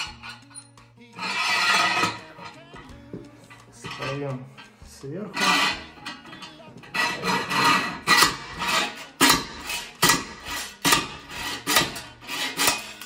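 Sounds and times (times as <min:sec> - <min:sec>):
weight sliding rasp: 0:00.0 - 0:13.0
slide hammer metal blows: 0:05.3 - 0:13.0.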